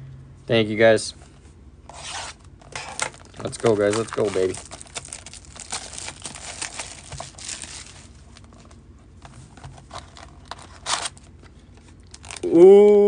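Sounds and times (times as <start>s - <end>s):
plastic shrink wrap crinkling: 2.8s - 8.8s, 9.8s - 12.5s.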